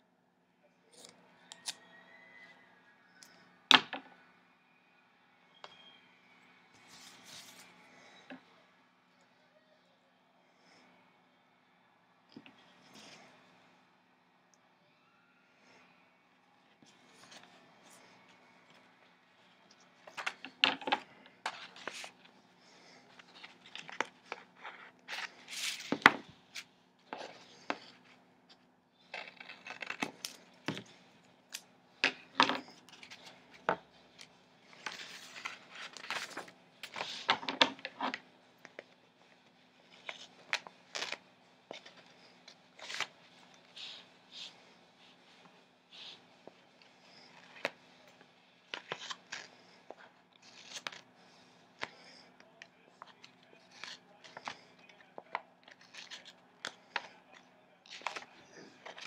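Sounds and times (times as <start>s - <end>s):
paper pages handled: 6.8s - 8.4s, 16.8s - 59.0s
tape crackling: 16.8s - 59.0s.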